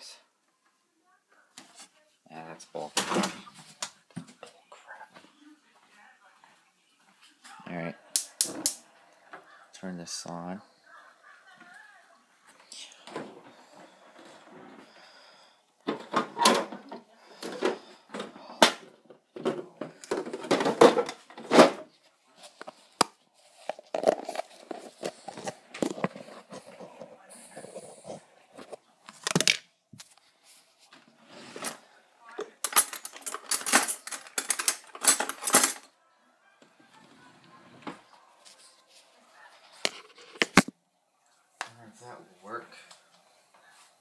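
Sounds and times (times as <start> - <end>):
kitchen items clattering: 2.8 - 3.8, 13.1 - 29.7, 30.9 - 35.9.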